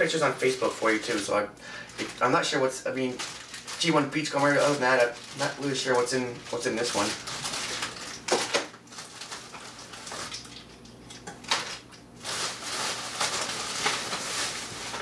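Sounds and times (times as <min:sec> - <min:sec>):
bubble wrap and plastic rustling: 0:00.0 - 0:15.0
bubble wrap crackles: 0:00.1 - 0:10.6, 0:11.4 - 0:15.0.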